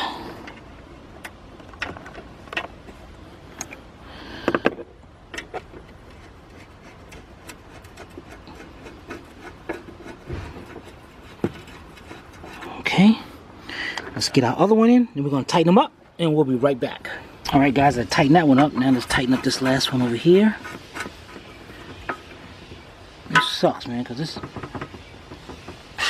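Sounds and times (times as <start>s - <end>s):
dull thump: 10.2s - 11.7s
sharp knocks: 24.4s - 25.9s.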